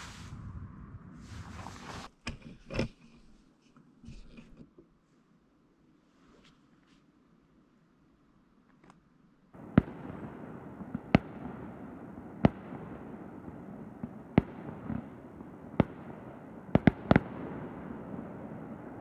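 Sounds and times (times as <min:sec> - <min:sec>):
background hiss: 0:00.0 - 0:02.2, 0:04.9 - 0:19.0
firework bangs: 0:09.6 - 0:19.0.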